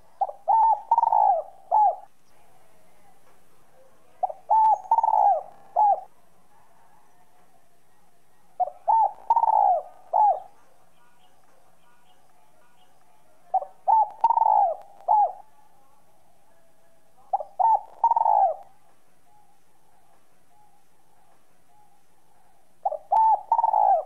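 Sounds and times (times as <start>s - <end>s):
dove cooing: 0.0s - 2.9s, 3.8s - 7.3s, 8.5s - 11.4s, 13.5s - 15.8s, 16.5s - 24.0s.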